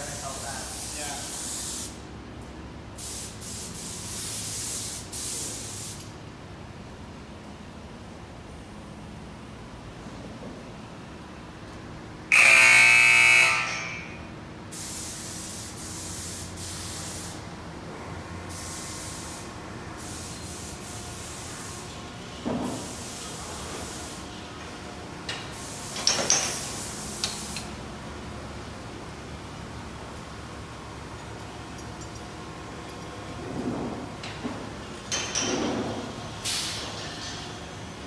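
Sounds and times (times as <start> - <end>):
air spray gun hissing: 0.0 - 2.1, 2.9 - 6.1, 14.7 - 17.4, 18.5 - 22.0, 25.4 - 27.8, 36.4 - 36.9
loud buzzer tone: 12.3 - 14.3.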